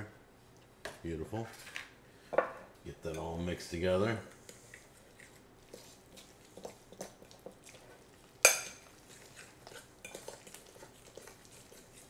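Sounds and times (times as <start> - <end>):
fork scraping ceramic dish: 8.5 - 12.0.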